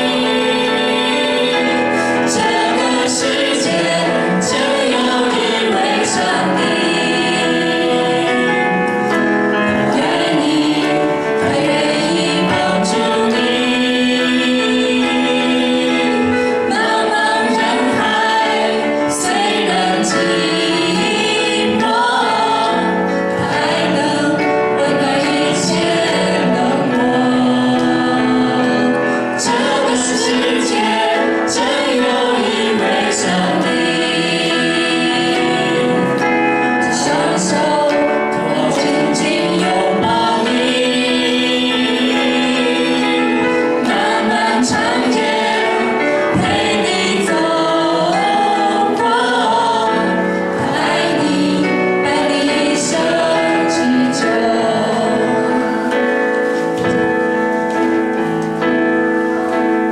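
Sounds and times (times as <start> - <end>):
vocal quartet singing: 0.0 - 59.9.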